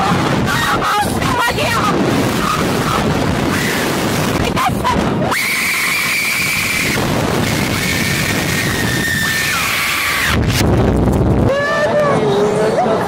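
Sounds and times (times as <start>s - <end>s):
riders crying out: 0.0s - 10.5s
rushing air: 0.0s - 11.6s.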